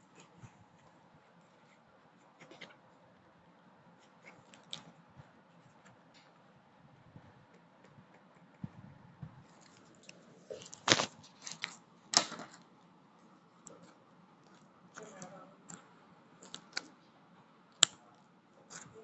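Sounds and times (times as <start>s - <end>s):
paper crinkling and rustling: 9.4s - 12.7s.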